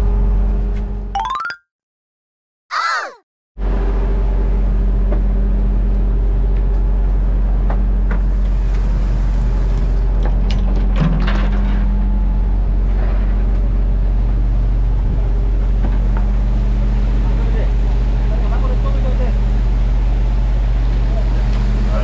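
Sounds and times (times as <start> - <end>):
boat engine humming: 13.7 - 22.0.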